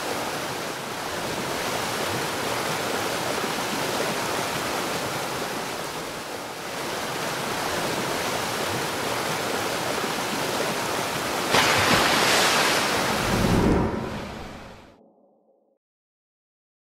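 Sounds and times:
rushing river water: 0.0s - 14.7s
deep rumble: 13.0s - 15.6s.

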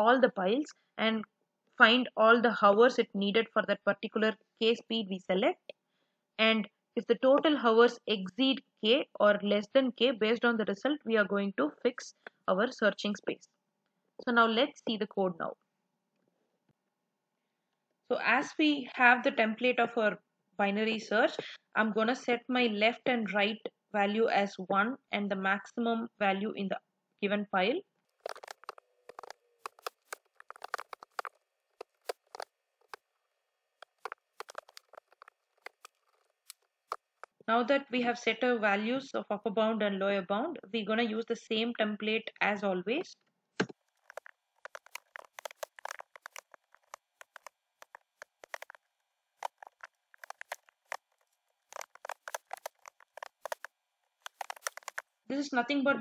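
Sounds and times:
keyboard typing: 28.2s - 33.0s, 33.8s - 37.4s, 43.6s - 48.8s, 49.4s - 55.0s.

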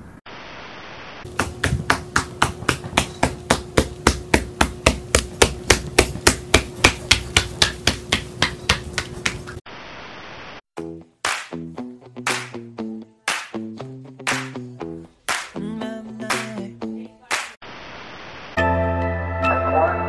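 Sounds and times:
parrot feet tapping on wood floor: 1.3s - 9.6s.

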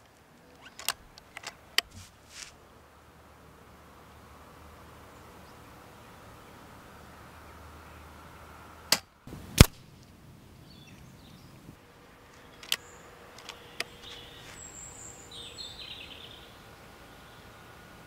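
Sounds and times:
birds calling: 0.0s - 18.0s
air rifle shot crack: 8.9s - 9.9s
light clicks: 12.3s - 14.2s.

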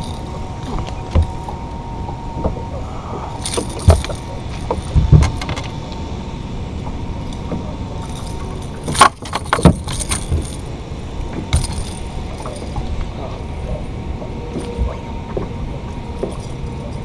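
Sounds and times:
knocks and clatters on boat deck: 0.0s - 5.8s, 7.4s - 17.0s.

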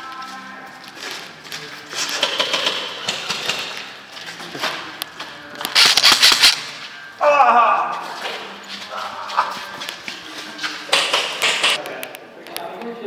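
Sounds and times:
airsoft guns firing in bursts: 5.7s - 6.7s.

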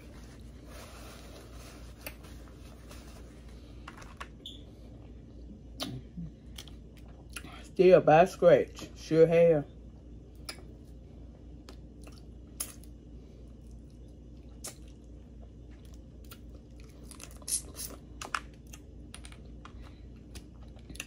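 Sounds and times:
quiet chewing and squishing: 4.9s - 7.7s, 9.8s - 21.0s.

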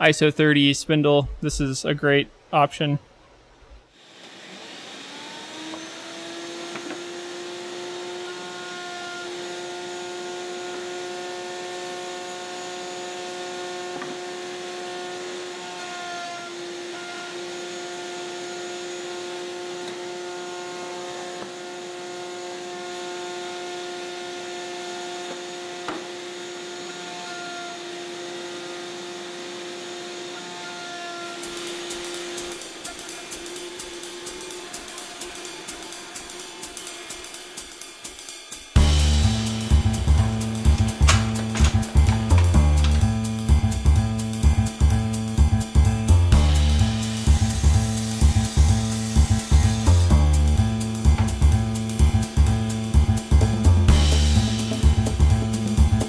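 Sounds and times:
router high whine: 3.9s - 38.1s
dust extraction hiss: 31.4s - 45.3s, 46.3s - 56.0s.

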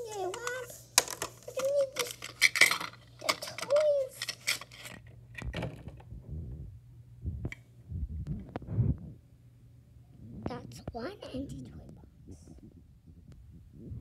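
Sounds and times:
plastic toy pieces clicking: 0.3s - 5.1s.

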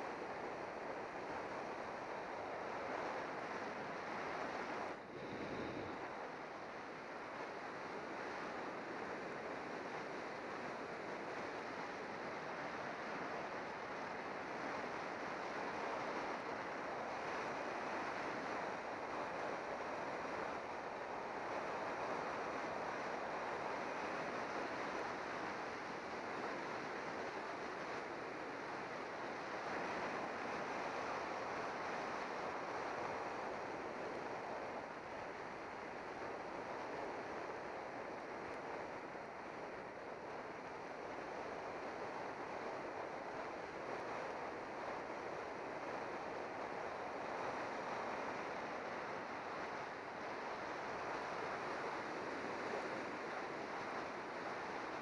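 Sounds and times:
wind rushing over microphone: 0.0s - 11.9s.

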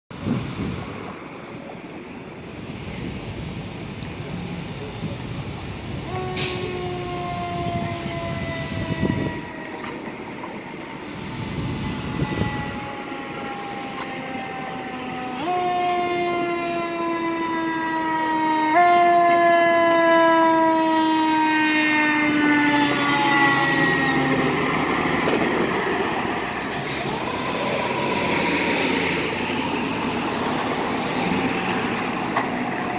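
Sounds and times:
truck engine and road noise: 0.1s - 32.9s
fire engine air horn blasts: 6.0s - 9.9s, 11.1s - 24.6s.

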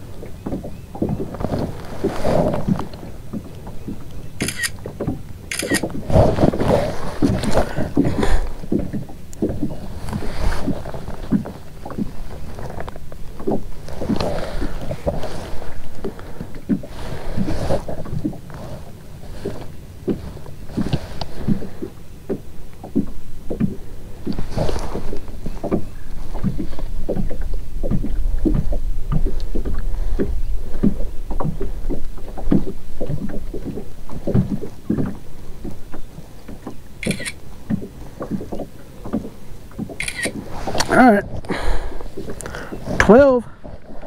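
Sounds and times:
wind rumble on microphone: 0.0s - 44.0s
light knocks and slaps on kayak: 20.8s - 36.8s, 37.6s - 40.0s.

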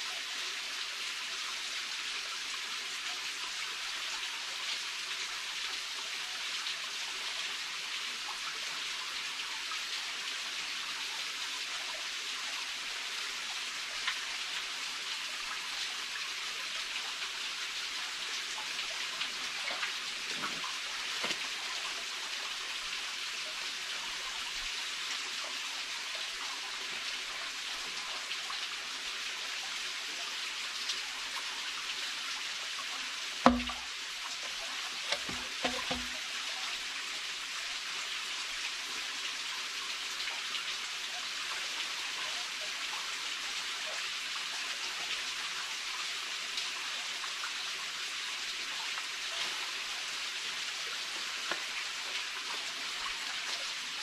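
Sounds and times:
stream flowing: 0.2s - 42.8s
sharp thump: 33.5s - 33.8s, 35.1s - 36.2s
soft knocks: 33.5s - 33.8s, 35.1s - 36.2s.

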